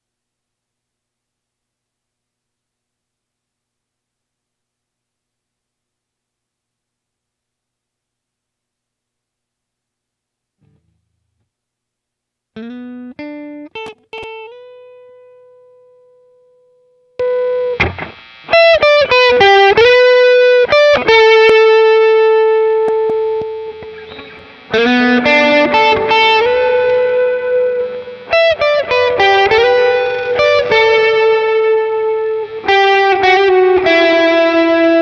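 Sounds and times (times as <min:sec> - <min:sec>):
overdriven electric guitar lead: 0:12.6 - 0:16.3, 0:17.2 - 0:35.0.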